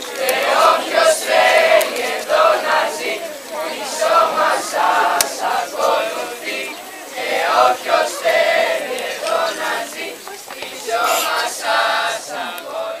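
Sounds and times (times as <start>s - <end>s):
young voices chanting together: 0.0s - 13.0s.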